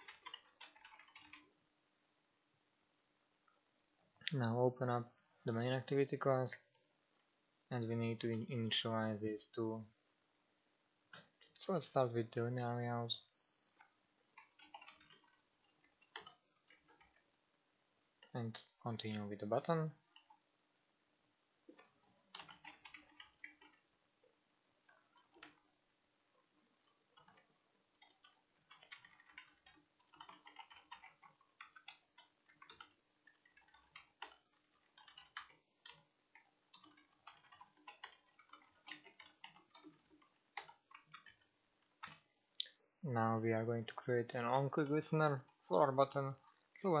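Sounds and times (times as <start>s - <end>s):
computer keyboard typing: 0.0s - 1.5s, 13.8s - 17.3s, 21.7s - 23.9s, 24.9s - 25.7s, 26.7s - 42.3s
faint steady hum: 0.0s - 47.0s.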